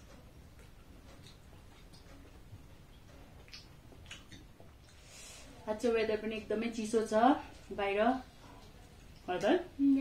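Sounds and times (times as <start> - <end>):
person chewing food: 0.0 - 5.4.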